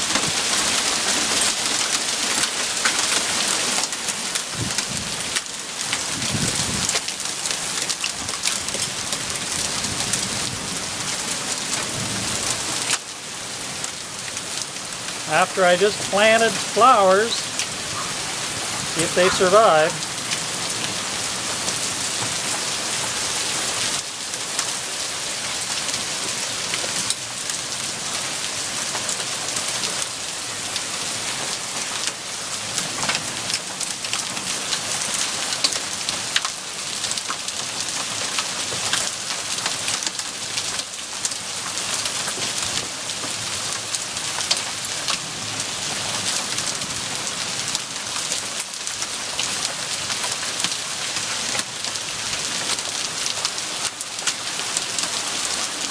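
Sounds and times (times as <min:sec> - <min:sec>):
heavy rain hissing: 0:15.0 - 0:21.5.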